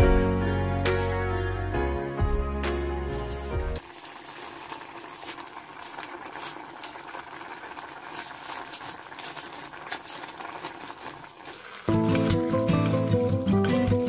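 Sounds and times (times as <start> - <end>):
curry simmering and bubbling: 3.8 - 14.0.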